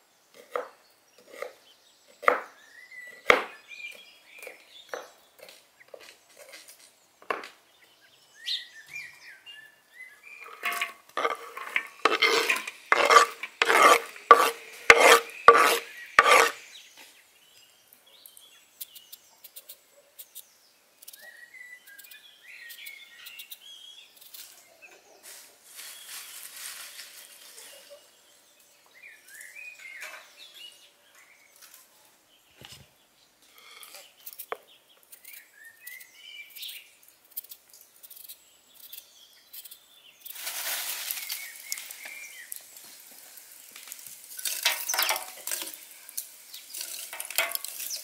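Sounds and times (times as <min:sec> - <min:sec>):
birds chirping faintly: 0:00.0 - 0:48.0
knife cutting and scraping vegetables: 0:00.3 - 0:07.0, 0:10.4 - 0:16.7, 0:33.5 - 0:43.0, 0:43.7 - 0:48.0
potato peeling scrape: 0:10.4 - 0:16.6.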